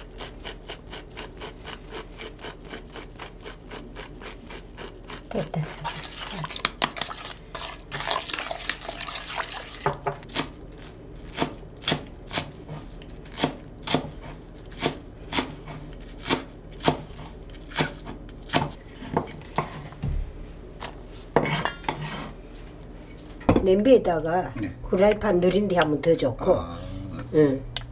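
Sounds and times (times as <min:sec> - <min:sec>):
spoon scraping metal bowl: 0:00.2 - 0:10.1, 0:21.4 - 0:23.3
knife chopping on wooden board: 0:11.3 - 0:19.9, 0:21.4 - 0:22.3.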